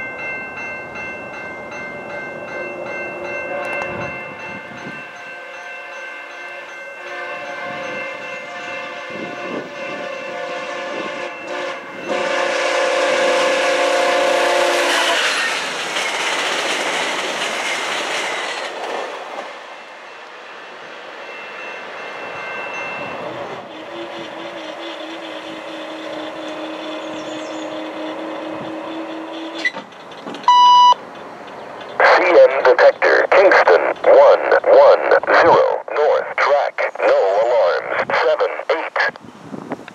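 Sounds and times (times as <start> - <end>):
train horn blasts: 5.4 - 15.6
train wheels rumbling and clacking: 14.6 - 20.0, 23.5 - 32.0.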